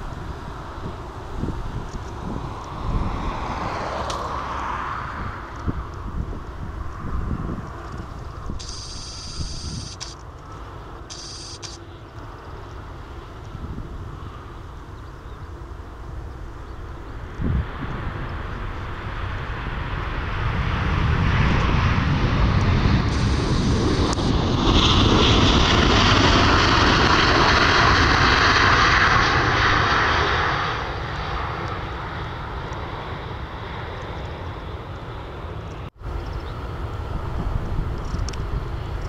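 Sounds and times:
wind on microphone: 0.0 - 10.1, 13.3 - 30.0, 36.1 - 39.0
jet engines roaring: 0.0 - 39.0.

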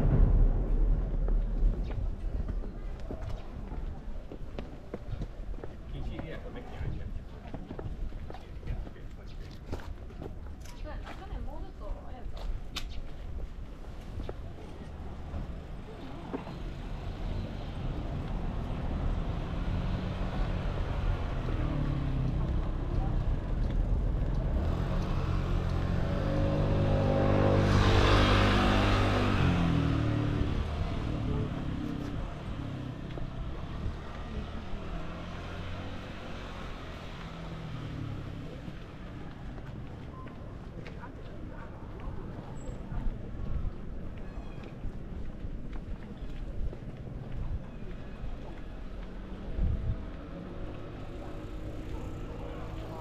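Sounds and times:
motor vehicle passing: 16.5 - 39.7.

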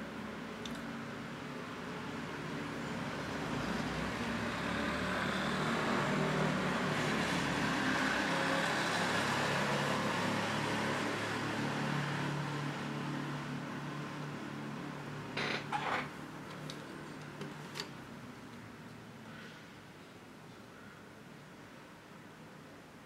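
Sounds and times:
road vehicle passing: 0.0 - 18.5.

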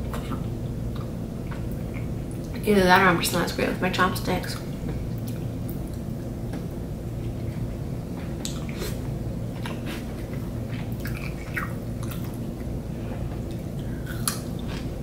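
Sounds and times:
low background hum: 0.0 - 15.0
person chewing: 7.2 - 15.0.

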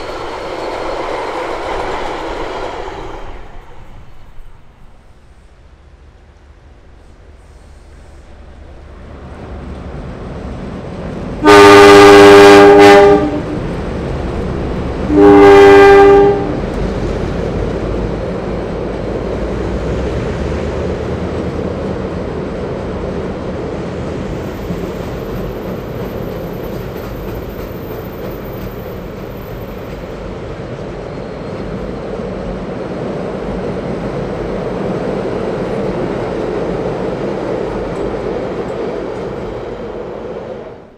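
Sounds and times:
train rumbling across steel bridge: 0.0 - 40.9
locomotive horn blasts: 11.4 - 13.6, 15.1 - 16.6.

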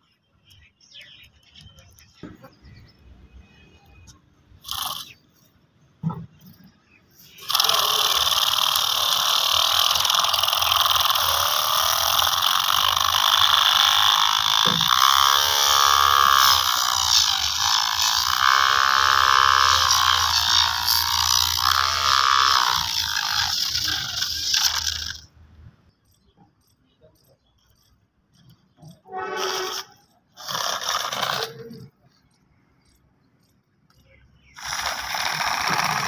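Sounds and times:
small electric motor whine: 3.8 - 5.5, 7.2 - 25.3, 28.9 - 33.5, 34.4 - 36.0.

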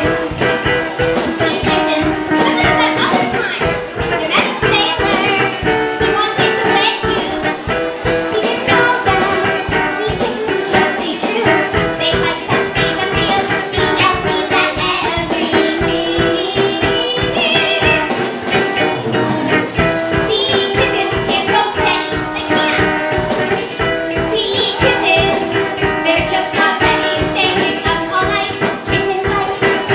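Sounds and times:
drum kit beat: 0.0 - 29.9
women singing: 8.3 - 18.2, 20.0 - 29.9.

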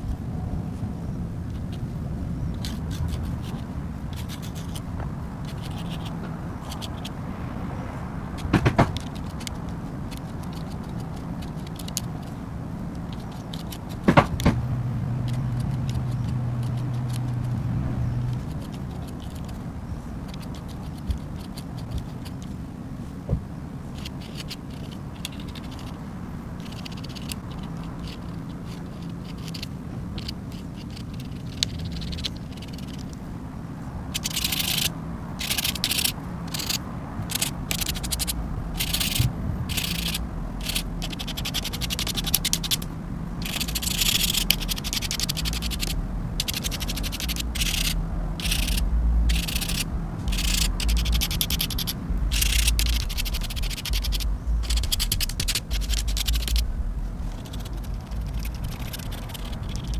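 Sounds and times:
low hum: 0.0 - 59.9
pen nib scratching on paper: 2.6 - 7.2, 8.4 - 14.6, 15.2 - 17.6, 18.2 - 19.6, 20.2 - 22.5, 23.9 - 26.0, 26.6 - 33.1, 34.1 - 59.9
sharp knocks: 8.4 - 9.2, 14.0 - 14.7.

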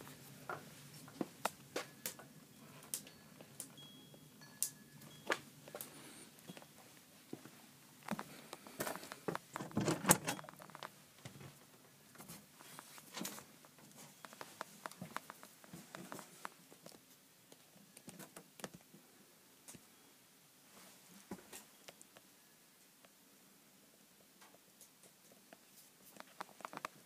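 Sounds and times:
wooden door opening: 9.6 - 10.6
light footsteps: 13.8 - 16.9.

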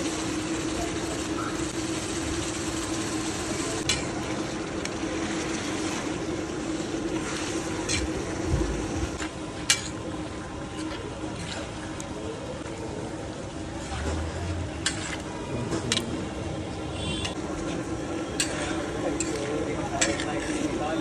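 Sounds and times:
gravy sizzling on a griddle: 0.0 - 11.2
metal spatula clicking on griddle: 18.4 - 20.6.

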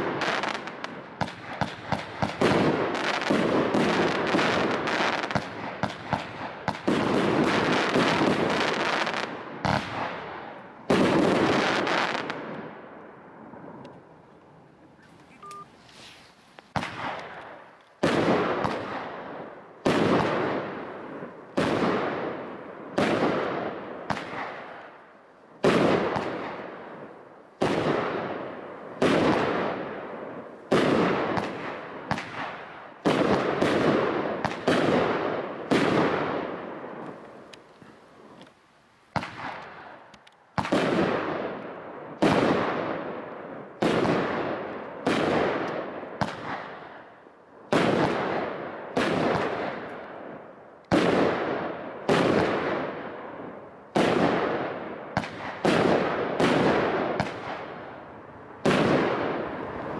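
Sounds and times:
firework shots banging: 0.0 - 12.7, 16.7 - 20.9, 21.5 - 24.8, 30.7 - 37.6, 40.6 - 41.5, 53.9 - 58.0, 58.6 - 59.9.

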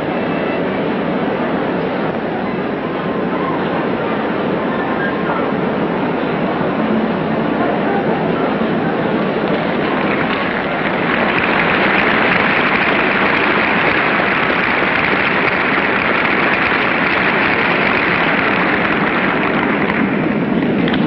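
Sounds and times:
audience applauding: 9.3 - 21.0.

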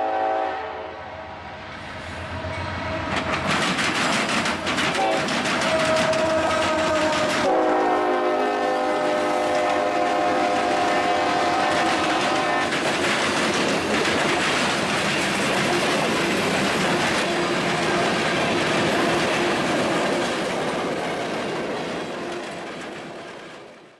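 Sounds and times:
locomotive horn: 0.0 - 1.6, 5.0 - 12.8
freight cars clattering on track: 3.1 - 7.6, 11.7 - 23.7.

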